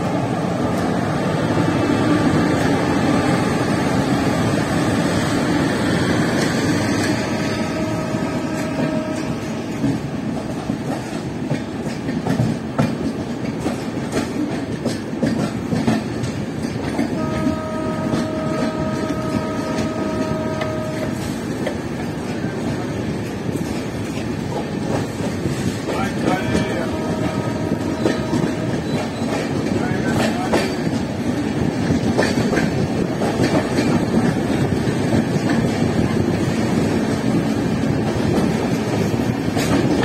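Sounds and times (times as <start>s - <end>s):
train wheels clattering over rail joints: 2.3s - 40.0s
train horn: 6.9s - 9.8s, 17.0s - 21.5s, 26.3s - 29.4s.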